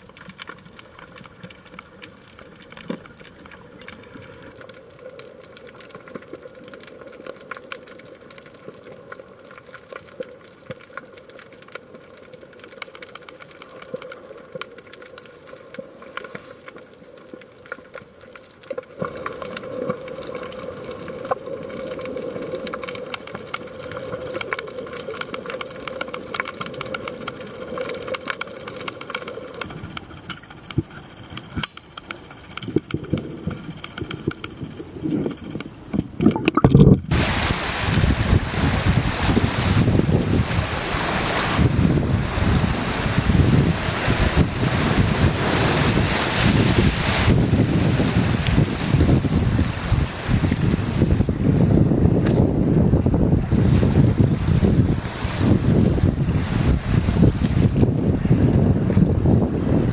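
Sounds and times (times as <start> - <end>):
faint crackling clicks: 0.0 - 37.2
underwater hiss: 12.1 - 39.8.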